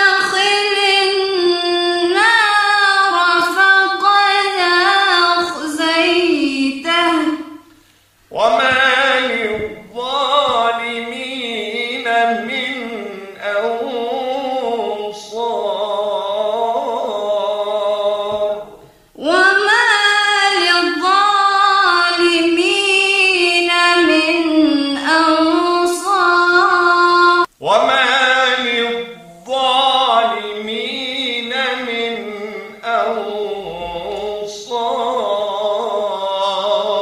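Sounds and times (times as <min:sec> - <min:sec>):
woman chanting: 0:00.0 - 0:07.7, 0:08.3 - 0:37.0
man chanting over telephone: 0:08.3 - 0:21.2, 0:27.4 - 0:37.0.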